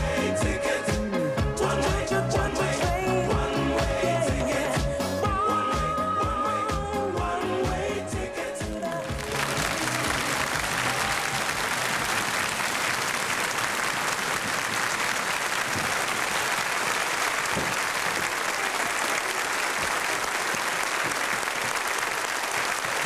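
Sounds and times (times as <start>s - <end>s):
audience applauding: 8.7s - 23.0s.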